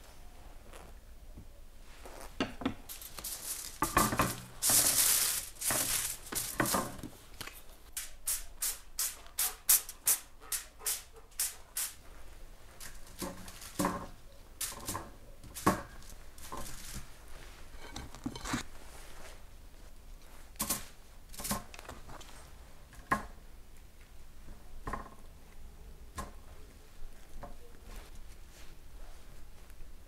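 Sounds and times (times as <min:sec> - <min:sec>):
small bottle shaking: 0:02.9 - 0:06.7
foil crinkling: 0:02.9 - 0:07.7, 0:12.8 - 0:13.9.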